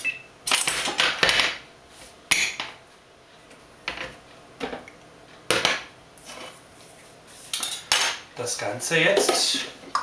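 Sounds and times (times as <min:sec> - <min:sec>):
cutlery clinking and scraping: 0:07.5 - 0:08.2.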